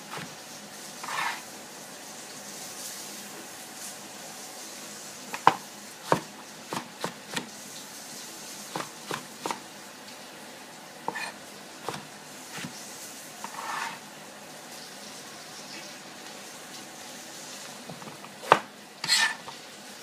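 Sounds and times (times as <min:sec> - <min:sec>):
pieces scraped across board: 0:01.0 - 0:01.5, 0:11.1 - 0:12.0, 0:13.4 - 0:14.0, 0:18.5 - 0:19.5.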